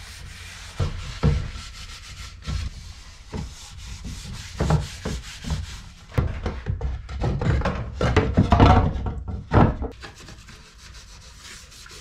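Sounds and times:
rag wiping wooden panel: 0:00.0 - 0:06.5, 0:10.0 - 0:12.0.

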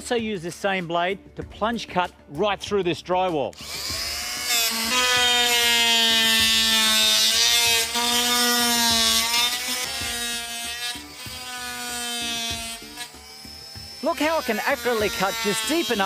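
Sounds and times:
oscillating tool buzzing whine: 0:03.6 - 0:16.0.

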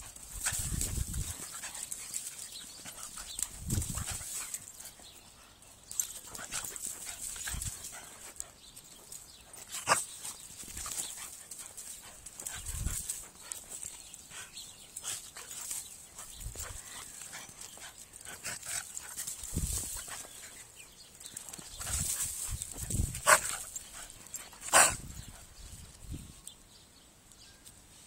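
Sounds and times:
dogs scuffling on dry leaves: 0:00.1 - 0:05.0, 0:14.9 - 0:25.1.

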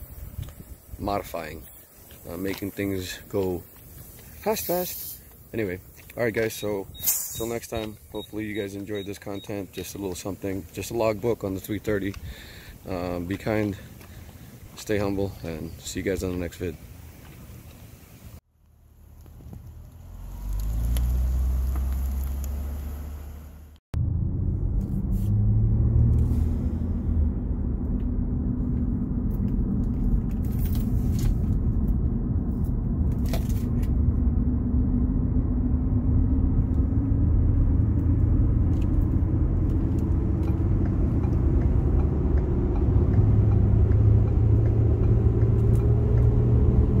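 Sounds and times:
car engine and road rumble: 0:00.0 - 0:47.0
hum rising in pitch: 0:19.8 - 0:47.0.

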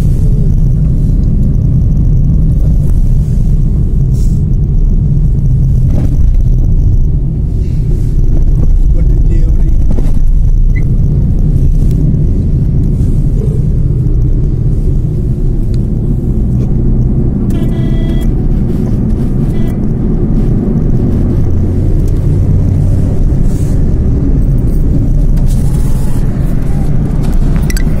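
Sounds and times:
car cabin road rumble: 0:00.0 - 0:28.0
brief high-pitched tone: 0:17.5 - 0:18.3, 0:19.5 - 0:19.8.

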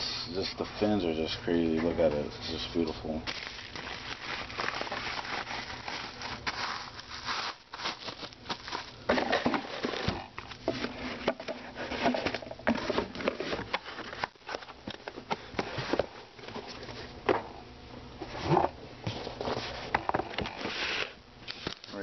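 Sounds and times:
bubble wrap crinkling: 0:03.2 - 0:10.6.

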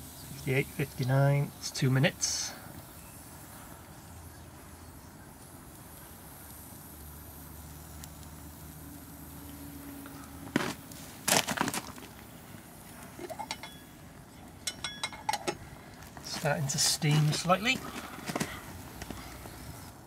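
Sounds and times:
faint breeze: 0:00.0 - 0:20.0
metal pot lid clanking: 0:13.2 - 0:13.9, 0:14.6 - 0:15.6
light metallic clinks: 0:13.2 - 0:15.7.

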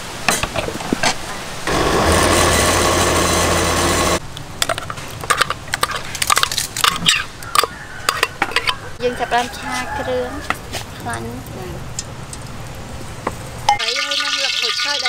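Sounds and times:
electric blender grinding: 0:01.7 - 0:04.2.

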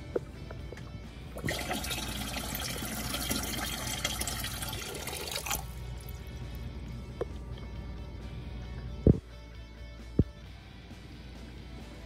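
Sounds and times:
water pouring into plastic tank: 0:01.4 - 0:06.1.

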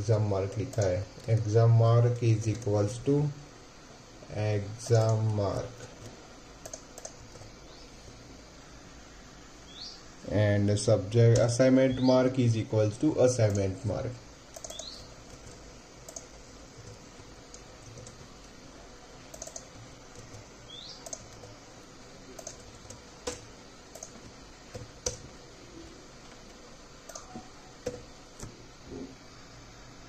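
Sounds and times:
computer keyboard typing: 0:02.1 - 0:02.9, 0:04.8 - 0:07.5, 0:14.5 - 0:18.5, 0:19.2 - 0:25.3, 0:26.3 - 0:28.5.

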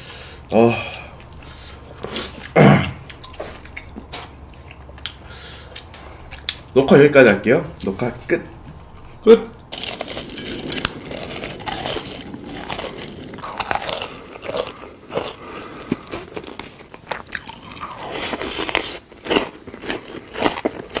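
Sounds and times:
crunchy food chewing: 0:09.7 - 0:21.0.

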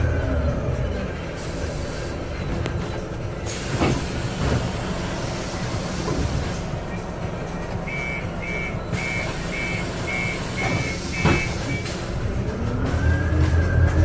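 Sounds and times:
bus engine revving: 0:00.0 - 0:14.0
door-closing warning beeps: 0:07.9 - 0:12.0.

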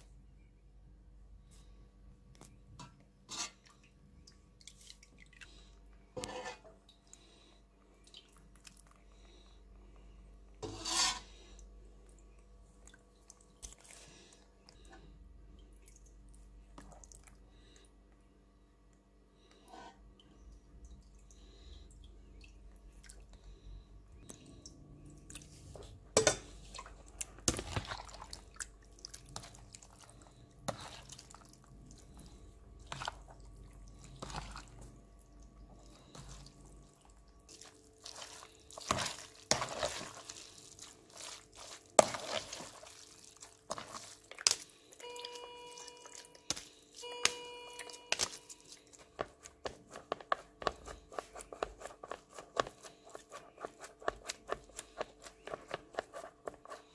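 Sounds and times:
wet cheese curds squelching: 0:07.0 - 0:18.0, 0:26.5 - 0:56.9
short electronic beeps: 0:45.0 - 0:46.2, 0:47.0 - 0:48.5.

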